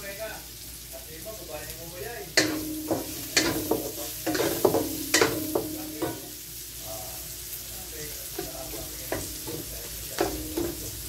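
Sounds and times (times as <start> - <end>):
onions sizzling in oil: 0.0 - 11.0
pan ringing: 2.4 - 6.4
spatula knocking against pan: 2.4 - 6.4, 8.3 - 11.0.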